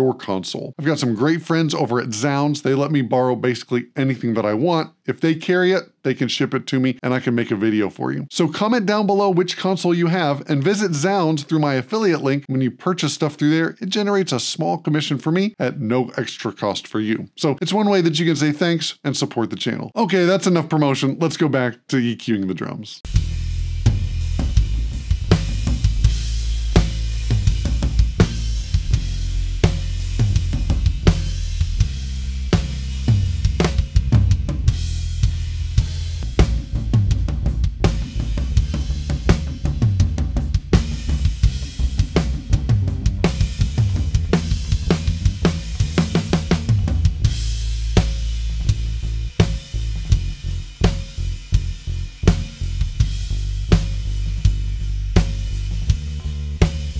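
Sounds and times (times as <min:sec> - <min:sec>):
drum kit groove: 0:23.0 - 0:56.9
low bass: 0:23.0 - 0:56.9.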